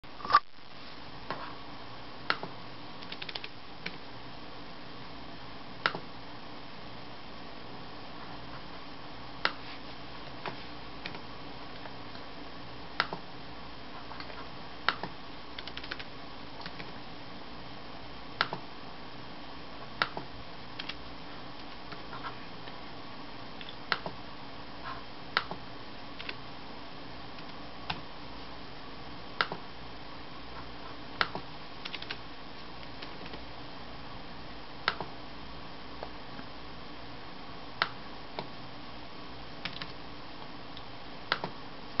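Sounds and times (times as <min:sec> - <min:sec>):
steady background hiss: 0:00.1 - 0:42.0
laptop keys tapping: 0:02.3 - 0:04.0, 0:14.2 - 0:16.9, 0:20.0 - 0:21.0, 0:31.2 - 0:32.2, 0:32.8 - 0:33.4, 0:39.6 - 0:40.0.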